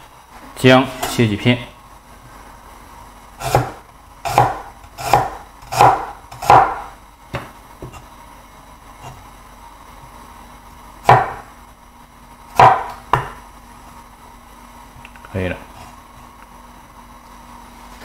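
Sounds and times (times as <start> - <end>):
cleaver chopping on wooden board: 3.4 - 7.5, 11.1 - 11.4, 12.6 - 13.4.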